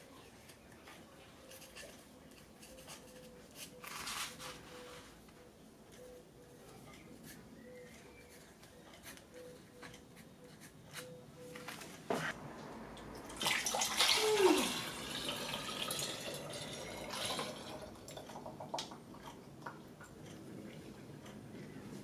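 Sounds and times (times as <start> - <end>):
liquid pouring into glass bottle: 13.2 - 19.7.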